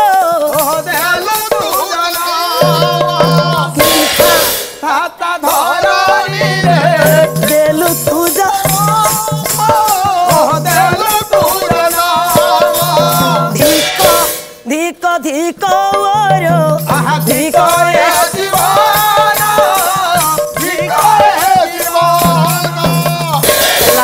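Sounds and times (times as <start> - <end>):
drum: 0.0 - 14.9, 15.6 - 24.0
rattling hand percussion: 0.0 - 24.0.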